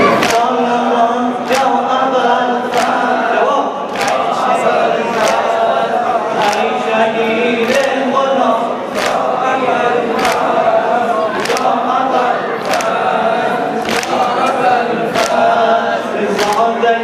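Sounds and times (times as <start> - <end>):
men chanting in unison: 0.0 - 17.0.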